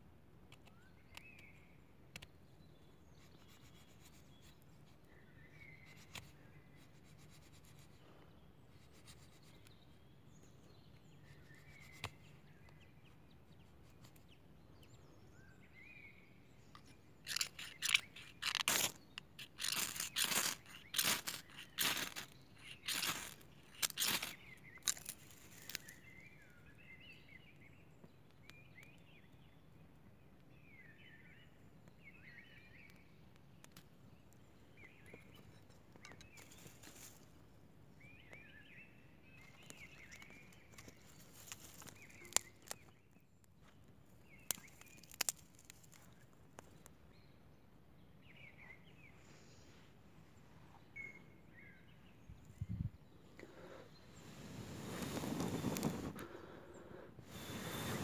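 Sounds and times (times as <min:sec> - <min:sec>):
faint bird chirps: 0:00.5 - 0:37.3, 0:37.9 - 0:58.0
knife shaving wood: 0:17.2 - 0:26.0, 0:39.7 - 0:42.9, 0:44.5 - 0:46.2
fire-starter rod rasping strokes: 0:17.3 - 0:25.8, 0:54.2 - 0:56.6, 0:57.2 - 0:58.0.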